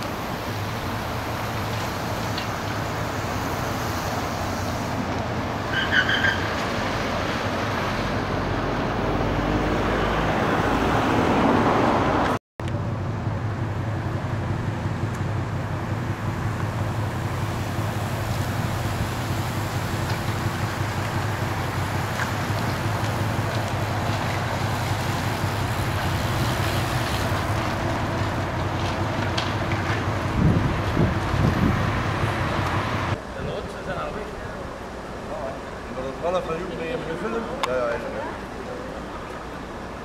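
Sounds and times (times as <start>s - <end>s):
street traffic: 0.0s - 40.0s
car driving past: 2.9s - 12.4s.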